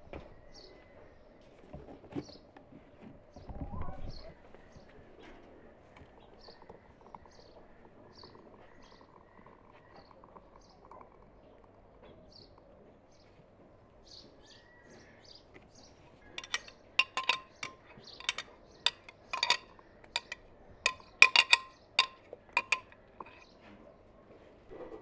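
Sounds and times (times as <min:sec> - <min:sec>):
glasses clinking: 0:16.4 - 0:23.4.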